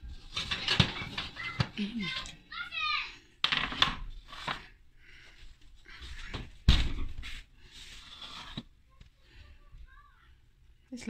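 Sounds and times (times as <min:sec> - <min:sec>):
kitchen handling noises: 0:00.0 - 0:02.4, 0:03.4 - 0:04.7.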